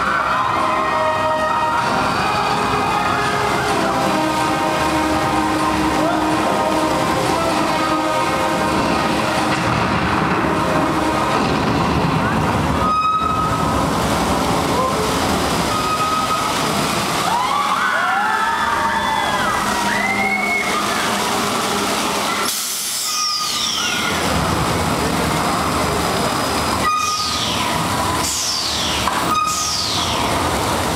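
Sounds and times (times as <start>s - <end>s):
ride machinery rushing: 0.0s - 30.9s
water fountains: 0.0s - 30.9s
riders screaming: 17.2s - 21.3s.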